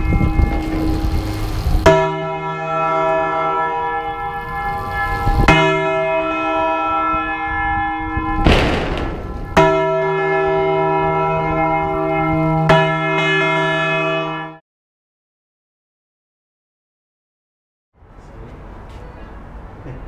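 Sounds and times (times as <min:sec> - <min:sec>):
large church bell ringing: 0:00.0 - 0:14.6
rush of noise: 0:04.0 - 0:05.6.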